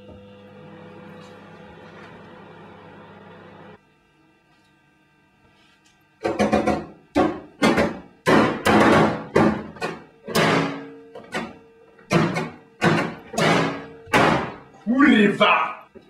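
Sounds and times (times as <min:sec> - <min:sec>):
hands pounding on microwave oven: 0:06.2 - 0:11.5, 0:12.1 - 0:14.6.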